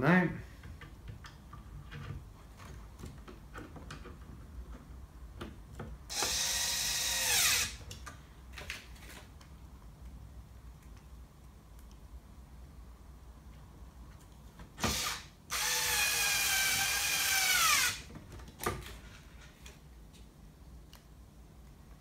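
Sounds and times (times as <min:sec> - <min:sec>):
electric screwdriver driving bolt: 0:06.1 - 0:07.8.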